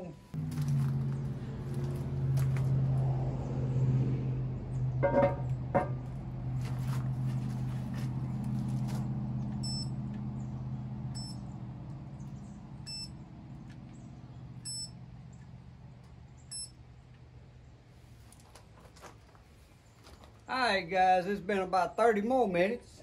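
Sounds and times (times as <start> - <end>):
short high beeps: 12.9 - 13.1, 14.6 - 15.0, 16.5 - 16.8.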